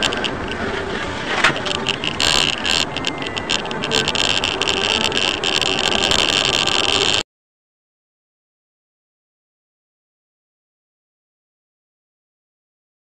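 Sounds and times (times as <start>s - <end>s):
car road and engine noise: 0.0s - 7.2s.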